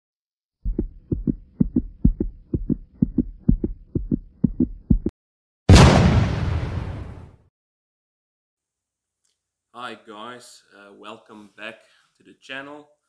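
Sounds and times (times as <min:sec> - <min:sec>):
heartbeat thumps: 0:00.6 - 0:05.1
loud bang: 0:05.7 - 0:07.4.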